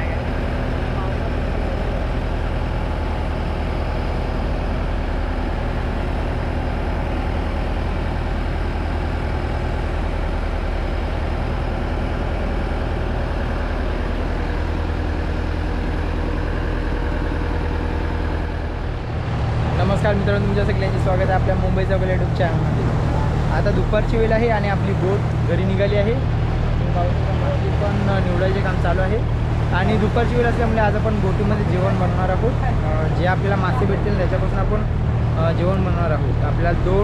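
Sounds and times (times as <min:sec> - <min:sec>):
boat engine droning: 0:00.0 - 0:37.0.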